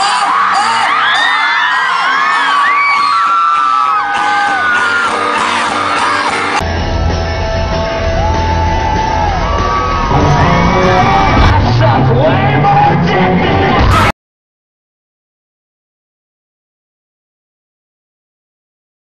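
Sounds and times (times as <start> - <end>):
live rock band: 0.0 - 14.1
heavy bass: 5.2 - 14.1
person singing: 9.8 - 14.1.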